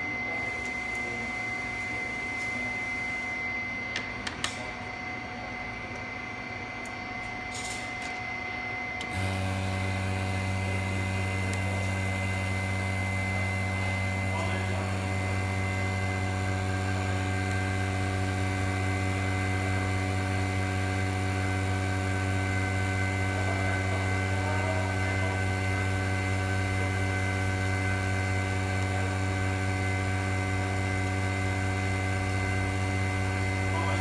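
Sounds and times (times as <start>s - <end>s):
vacuum pump humming: 0.0s - 34.0s.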